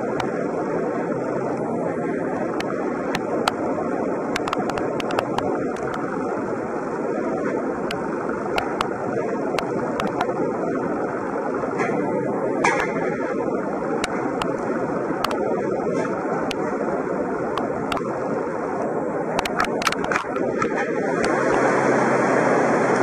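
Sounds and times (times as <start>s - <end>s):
machinery running: 0.0s - 23.0s
sharp clicks and knocks: 4.3s - 6.2s, 7.8s - 9.0s, 9.6s - 10.4s, 12.6s - 13.2s, 14.0s - 16.6s, 17.5s - 18.2s, 19.4s - 21.6s.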